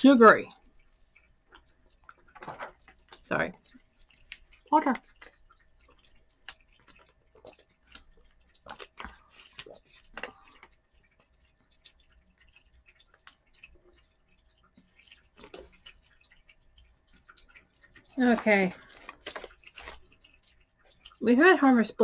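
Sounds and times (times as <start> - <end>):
sipping and swallowing: 0.1 - 21.6
plastic bottle crackling: 18.2 - 20.2.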